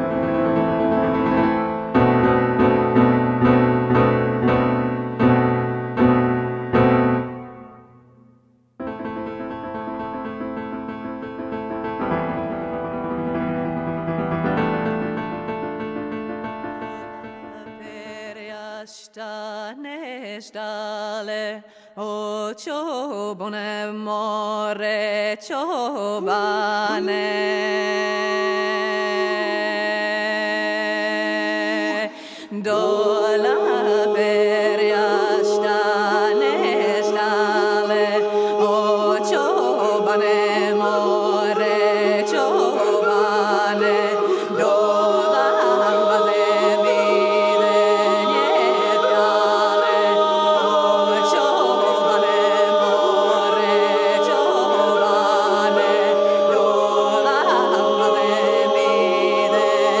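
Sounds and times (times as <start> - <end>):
unaccompanied voices singing chords: 26.1 - 60.0.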